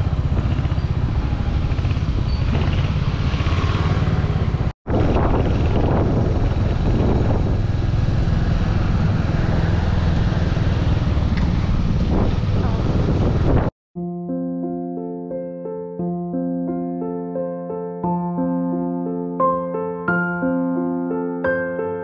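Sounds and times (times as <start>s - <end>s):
motorcycle engine running: 0.0s - 13.7s
road and wind noise: 0.0s - 13.8s.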